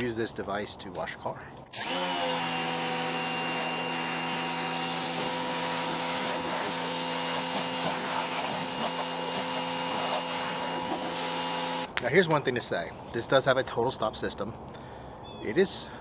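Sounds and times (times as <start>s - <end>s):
pressure washer motor whine: 1.8s - 11.9s
water jet hissing: 2.9s - 11.9s.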